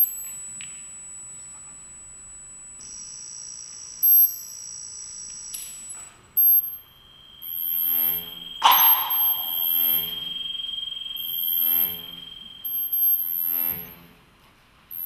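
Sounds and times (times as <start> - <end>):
short piercing beeps: 0.0 - 0.4, 2.8 - 13.9
high-pitched whine: 0.0 - 14.0
lower electronic tone: 0.0 - 14.0.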